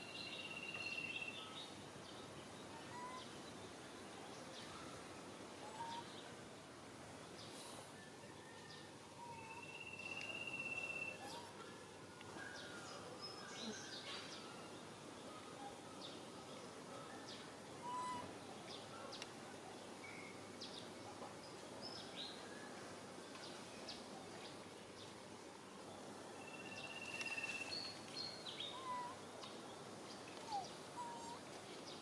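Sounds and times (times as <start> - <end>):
steady background hiss: 0.0 - 32.0
long bird whistle: 9.2 - 11.2, 17.8 - 18.3
birds chirping and calling: 17.8 - 18.3, 26.6 - 29.5, 30.1 - 31.5.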